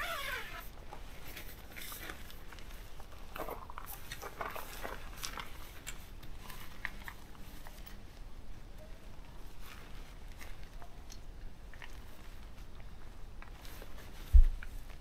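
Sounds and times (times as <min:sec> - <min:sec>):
tent fabric rustling: 0:00.0 - 0:03.1, 0:12.0 - 0:15.0.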